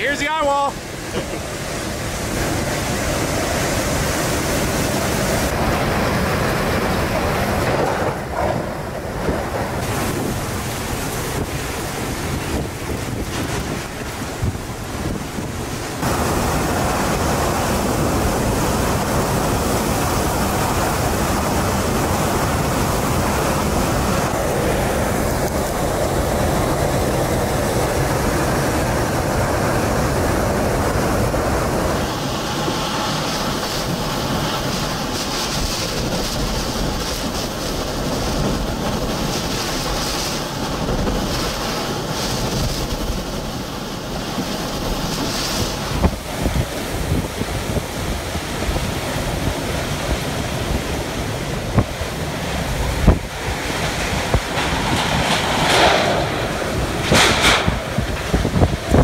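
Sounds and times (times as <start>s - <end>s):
driving rain: 0.0s - 59.0s
strong wind buffeting microphone: 0.0s - 59.0s.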